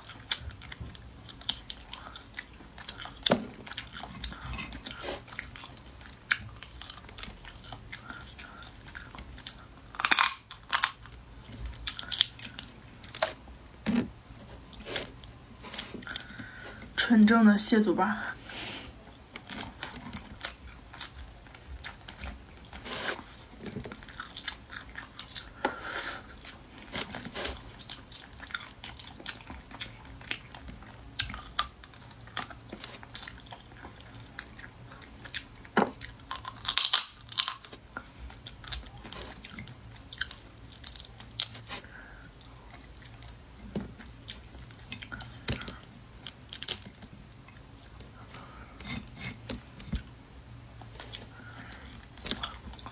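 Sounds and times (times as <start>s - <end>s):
chewing: 0.0s - 17.0s, 18.9s - 52.9s
shell cracking and peeling: 5.4s - 13.6s, 26.3s - 52.9s.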